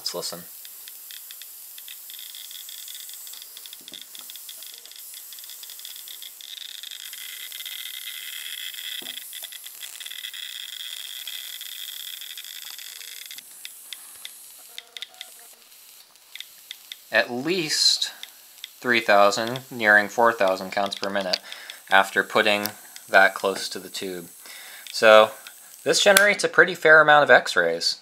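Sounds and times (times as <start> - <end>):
high-voltage hiss: 0.0 - 27.8
geiger counter clicking: 0.6 - 15.5.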